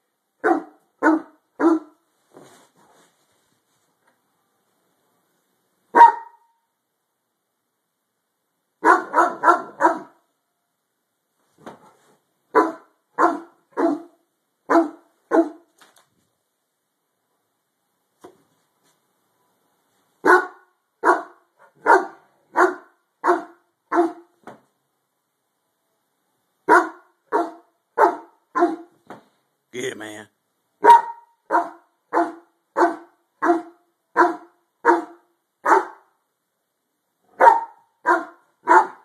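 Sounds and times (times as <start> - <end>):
dog barking: 0.4 - 2.0, 5.9 - 6.6, 8.8 - 10.2, 12.5 - 15.7, 20.2 - 24.3, 26.7 - 29.0, 30.8 - 36.1, 37.3 - 39.0.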